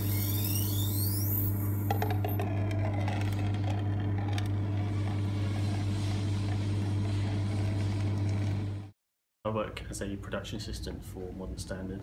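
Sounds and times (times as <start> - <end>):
espresso machine pump buzzing: 0.0 - 8.9.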